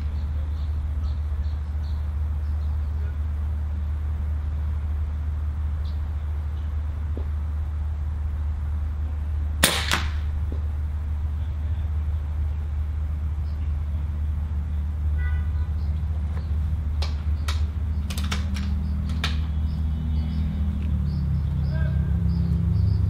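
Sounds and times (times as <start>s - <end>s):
steady low rumble: 0.0s - 23.0s
air rifle shot: 9.6s - 10.4s.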